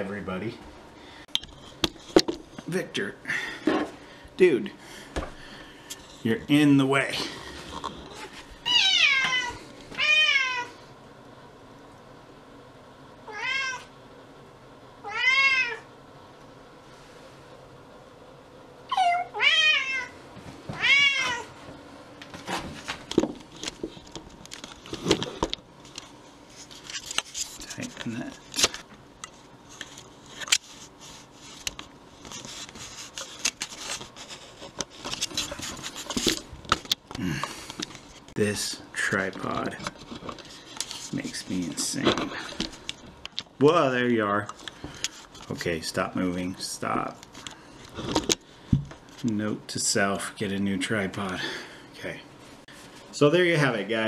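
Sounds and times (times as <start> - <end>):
cat meowing: 8.6 - 10.7, 13.3 - 13.9, 15.0 - 15.9, 18.9 - 20.2, 20.8 - 21.5
rubbing and scraping: 26.4 - 28.8, 29.7 - 36.6, 39.4 - 42.8.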